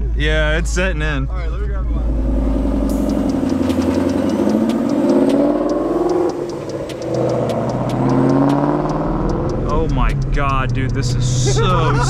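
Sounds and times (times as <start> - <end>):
car accelerating past: 1.8 - 12.0.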